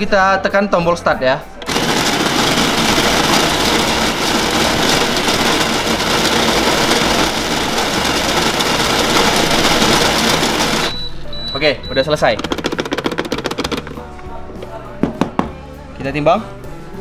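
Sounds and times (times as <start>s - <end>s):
electric coffee grinder running: 1.6s - 11.0s.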